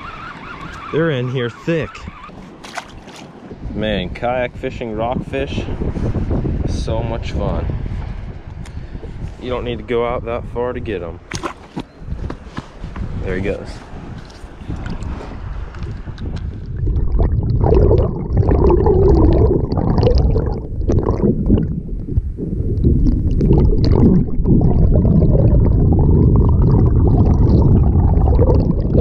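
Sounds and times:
bubbles: 15.8s - 29.0s
muffled underwater water gurgling: 16.5s - 29.0s.

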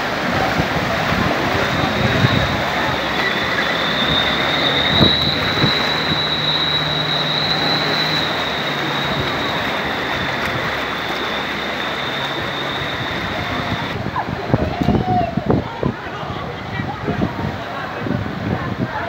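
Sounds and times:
floodwater sloshing: 0.0s - 14.0s
low engine hum: 0.0s - 14.0s
high-pitched whine: 1.5s - 14.0s.

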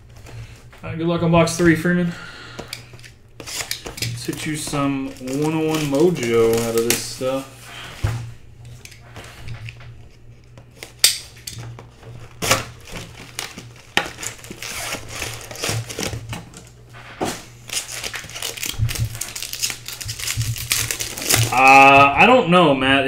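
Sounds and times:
foil packs crinkling: 1.4s - 22.2s
box cutter slitting plastic wrap: 3.4s - 7.5s, 12.2s - 21.9s.

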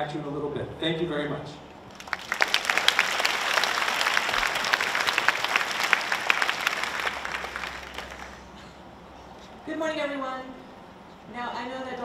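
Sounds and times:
audience applauding: 1.9s - 8.5s.

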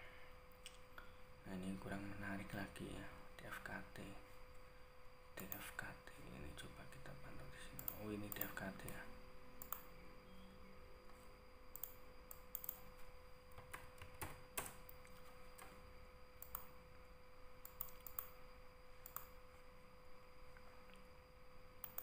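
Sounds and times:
faint electrical tone: 0.0s - 22.0s
keyboard and mouse clicks: 7.8s - 9.0s, 9.6s - 9.9s, 11.8s - 12.9s, 13.5s - 15.8s, 16.4s - 16.7s, 17.6s - 18.4s, 19.0s - 19.4s.

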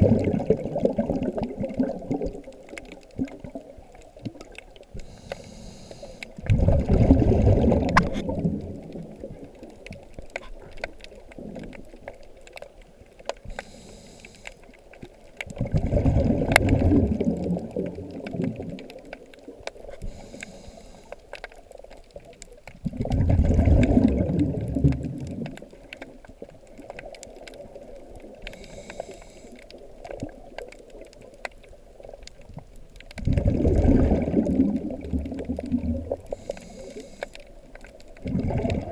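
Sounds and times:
exhaled bubbles gushing underwater: 0.0s - 5.2s, 6.3s - 12.2s, 15.0s - 20.3s, 21.9s - 38.9s
regulator inhalation hiss: 5.0s - 6.3s, 13.5s - 14.7s, 20.0s - 21.2s, 28.5s - 29.6s, 36.3s - 37.4s.

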